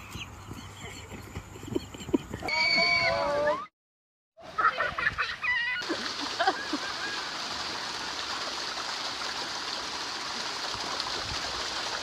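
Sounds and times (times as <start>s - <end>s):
water rushing down slide: 5.4s - 12.0s.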